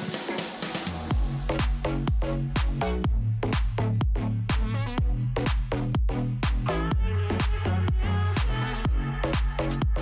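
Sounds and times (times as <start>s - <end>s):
electronic dance music: 0.0s - 10.0s
heavy bass kick drum: 0.0s - 10.0s.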